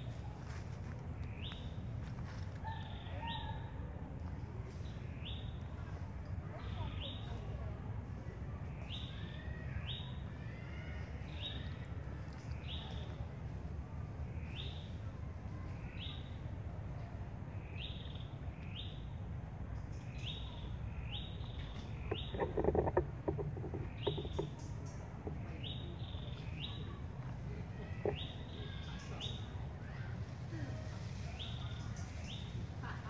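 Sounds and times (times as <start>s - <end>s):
steady low rumble: 11.4s - 30.5s
bird calling: 21.4s - 27.0s.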